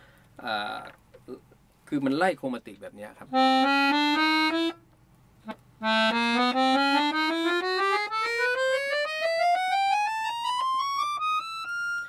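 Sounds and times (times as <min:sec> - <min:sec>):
accordion playing rising scale: 0:03.3 - 0:04.8, 0:05.4 - 0:12.0.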